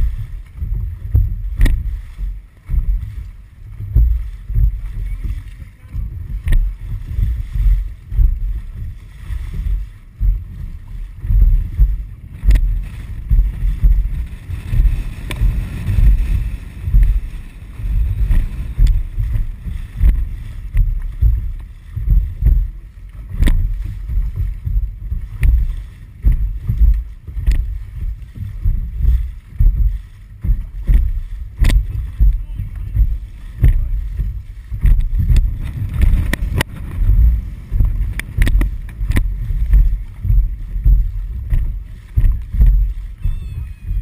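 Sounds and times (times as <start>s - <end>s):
water washing along boat hull: 0.0s - 44.0s
wind buffeting microphone: 0.0s - 44.0s.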